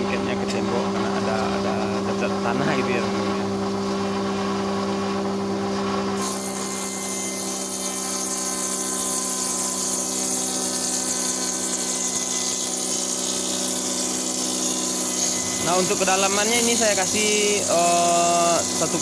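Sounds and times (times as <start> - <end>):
table saw motor hum: 0.0 - 19.0
saw blade cutting timber: 6.2 - 19.0.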